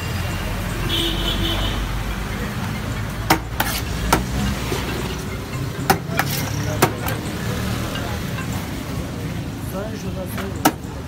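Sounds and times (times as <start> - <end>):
street traffic hum: 0.0 - 11.0.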